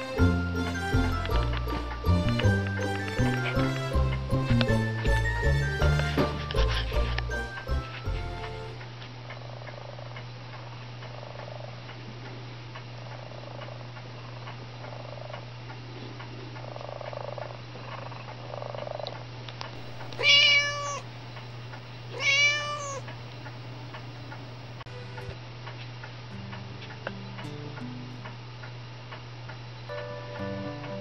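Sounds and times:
steady low hum: 0.0s - 31.0s
cat meowing: 20.1s - 21.1s, 22.1s - 23.1s.

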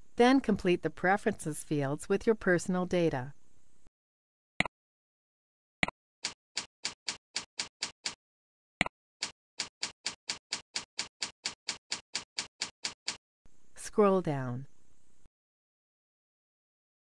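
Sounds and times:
computer keyboard typing: 6.2s - 8.2s, 9.6s - 13.2s.

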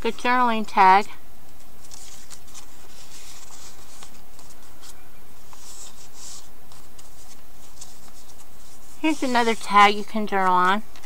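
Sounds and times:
paper rustling and sliding: 1.6s - 10.6s.

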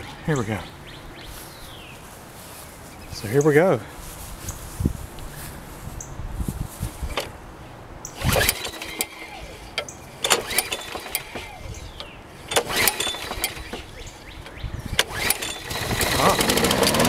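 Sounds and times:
mower engine turning over: 6.9s - 7.4s, 8.1s - 17.0s
recoil starter cord pulled: 7.0s - 7.4s, 8.1s - 17.0s.

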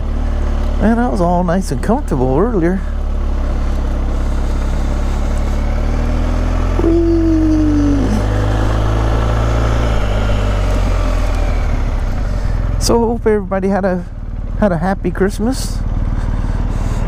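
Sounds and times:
motorcycle engine running: 0.0s - 17.0s
steady falling tone: 6.7s - 10.6s.

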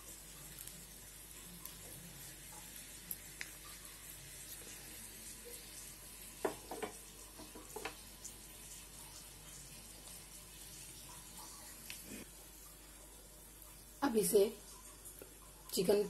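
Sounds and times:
chillies sizzling in oil: 0.0s - 16.0s
pan knocking on burner grate: 6.4s - 8.0s.

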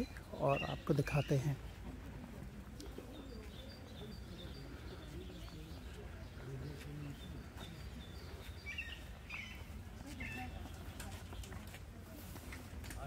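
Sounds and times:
bird chirping: 0.0s - 1.6s, 2.8s - 11.6s
pigeons cooing: 2.6s - 7.4s.

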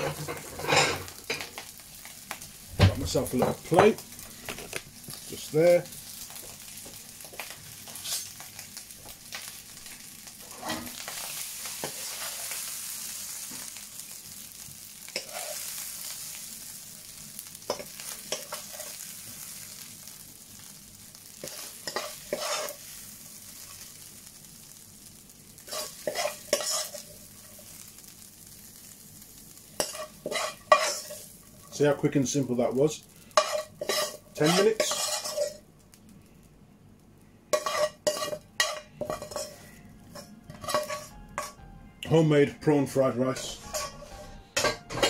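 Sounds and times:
spoon scraping and knocking pan: 0.0s - 1.5s, 10.5s - 11.2s, 17.7s - 19.0s, 21.4s - 22.8s, 25.7s - 27.2s, 29.8s - 31.8s, 33.4s - 35.6s, 37.6s - 41.6s, 43.3s - 45.0s
fried rice sizzling in pan: 0.0s - 45.0s.

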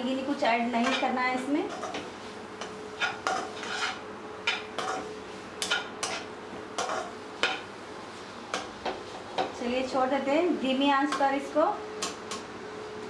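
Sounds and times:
spatula scraping a pan: 0.8s - 7.6s.

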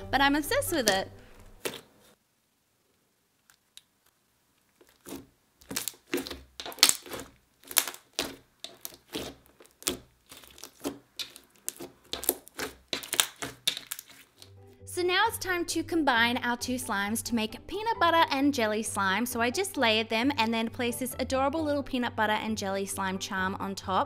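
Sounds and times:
slime kneaded by hand: 0.9s - 2.2s, 3.4s - 14.6s
sticky clicks and pops: 3.4s - 14.6s.

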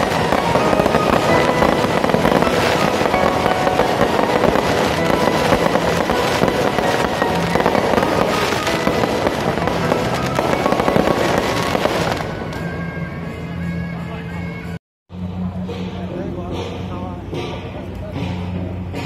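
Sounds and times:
fireworks crackling and banging: 0.0s - 13.0s
music: 0.0s - 19.0s.

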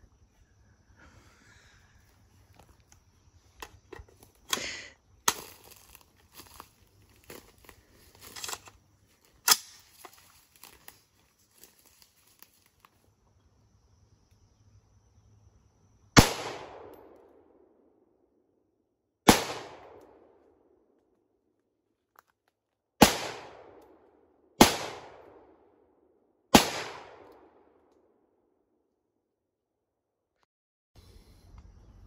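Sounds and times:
rifle handling metallic clicks: 8.1s - 10.9s
loud rifle shot: 16.2s - 17.2s, 19.3s - 20.2s, 23.0s - 23.8s, 24.6s - 25.5s, 26.5s - 27.7s.

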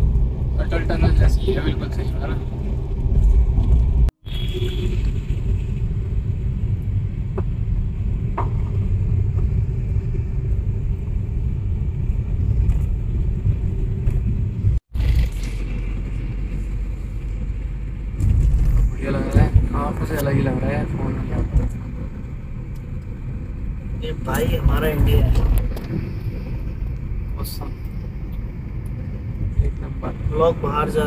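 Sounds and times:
car engine and tyre noise: 0.0s - 31.0s.

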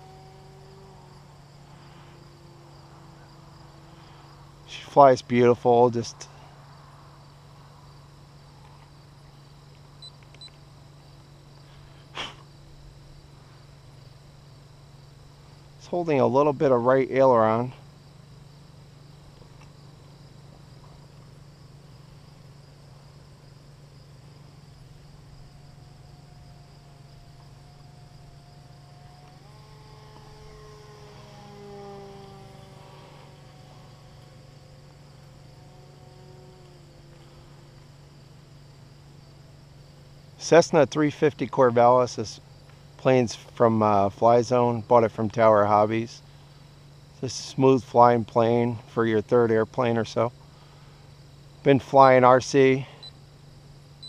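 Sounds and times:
model airplane motor whining: 0.0s - 5.0s, 15.1s - 40.5s
crickets chirping: 0.0s - 54.0s
faint low hum: 0.0s - 54.0s
brief hiss: 11.6s - 12.5s.

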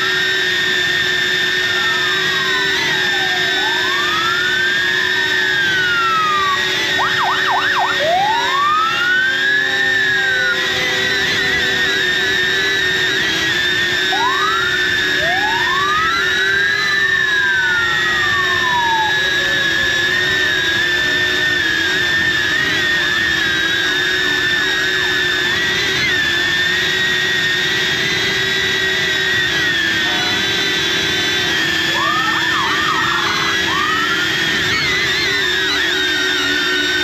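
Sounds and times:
drone propellers whining: 0.0s - 37.0s
emergency vehicle siren: 0.0s - 37.0s.

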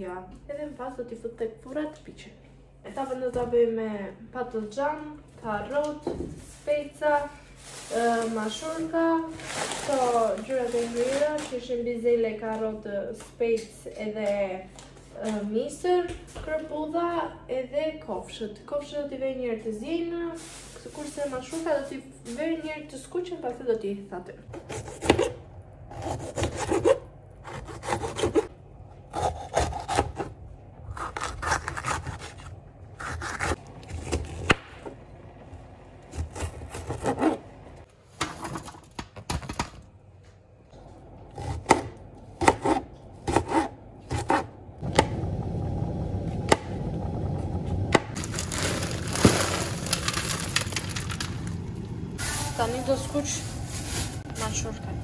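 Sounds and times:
knife scraping vegetables: 26.0s - 28.5s, 30.9s - 34.5s.

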